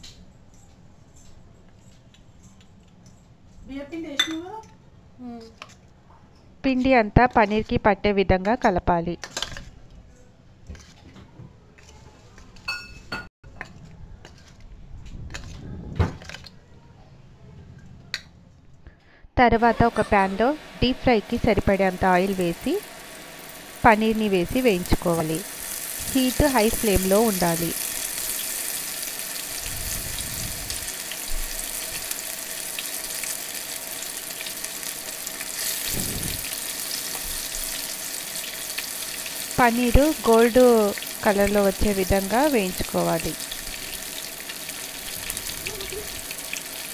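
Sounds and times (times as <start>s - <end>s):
spoon clinking against steel bowl: 4.2s - 4.4s
food deep-frying in sizzling oil: 20.2s - 46.9s.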